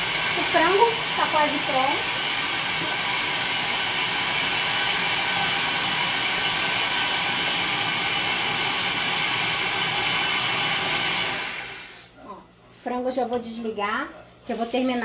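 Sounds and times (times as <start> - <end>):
food processor motor running: 0.0 - 11.8.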